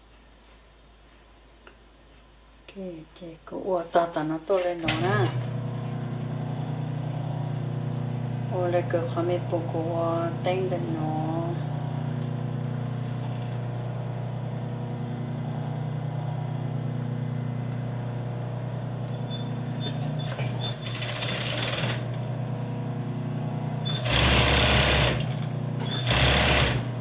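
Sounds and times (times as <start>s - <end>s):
sewing machine stitching: 4.5s - 7.2s, 18.9s - 22.5s, 23.6s - 27.0s
sewing machine motor hum: 4.8s - 27.0s.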